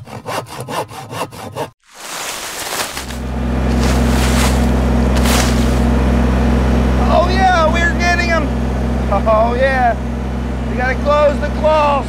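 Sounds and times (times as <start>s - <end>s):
pole saw cutting wood: 0.0s - 6.4s
tractor diesel engine running: 2.5s - 12.0s.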